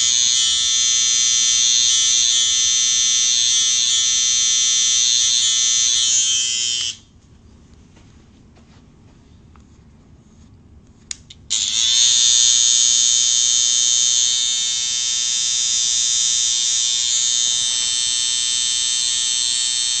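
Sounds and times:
hair clippers buzzing: 0.0s - 7.0s, 11.5s - 20.0s.

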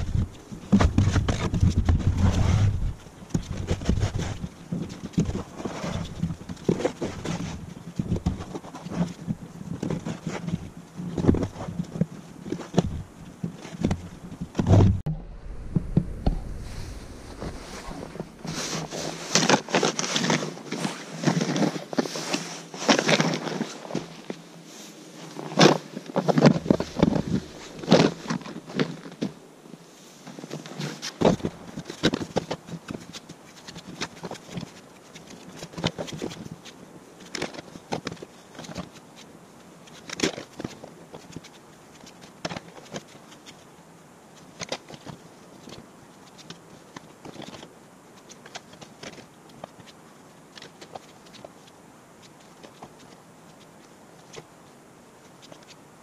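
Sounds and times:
footsteps crunching in snow: 0.0s - 4.5s, 14.8s - 28.7s
snow shovel scraping snow: 0.9s - 3.0s, 16.3s - 23.9s.

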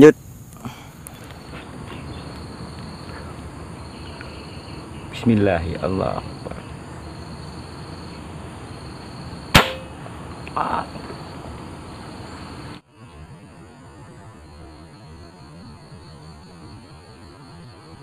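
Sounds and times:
insects buzzing: 0.0s - 18.0s
air rifle shot: 9.5s - 10.0s.

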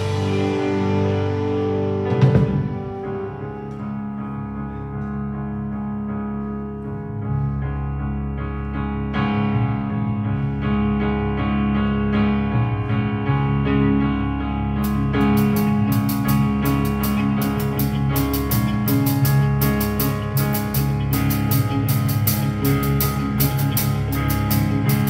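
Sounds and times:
electric keyboard chords: 0.0s - 25.0s.

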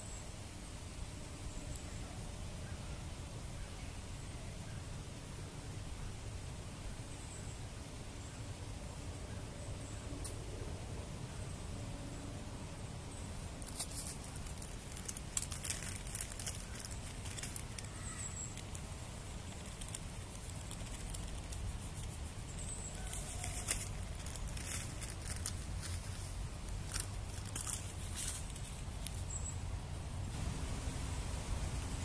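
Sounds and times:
plastic bag rustling and crinkling: 13.6s - 29.3s.

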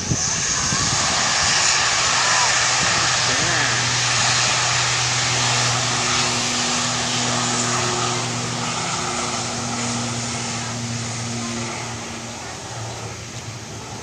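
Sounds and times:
turboprop plane droning: 0.0s - 14.0s.

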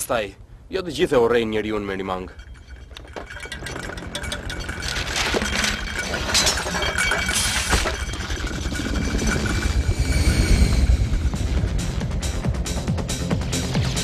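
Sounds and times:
glass shattering: 2.2s - 10.2s
low rumble: 2.3s - 13.5s.

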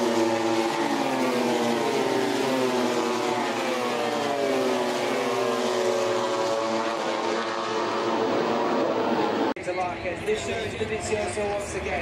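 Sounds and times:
engine drone: 0.0s - 9.6s.

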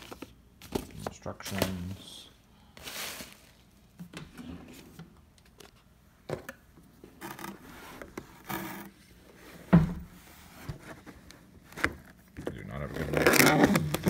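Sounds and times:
cardboard and plastic wrap rustling: 0.0s - 3.8s, 7.2s - 14.0s.

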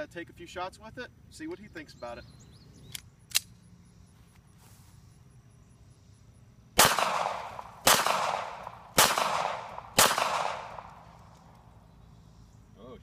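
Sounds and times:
pistol shots with echo: 6.8s - 11.2s.

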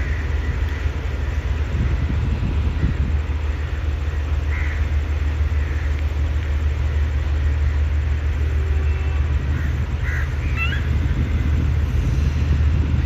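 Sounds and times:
steady low rumble: 0.0s - 13.0s
crows cawing: 4.4s - 5.9s, 9.5s - 10.9s.

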